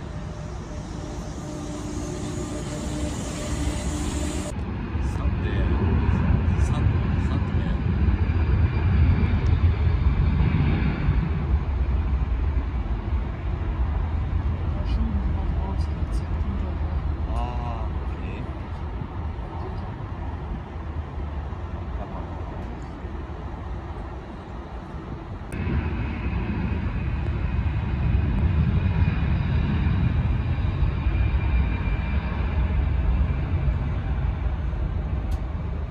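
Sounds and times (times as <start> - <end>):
distant jet engines rumbling: 0.0 - 35.9.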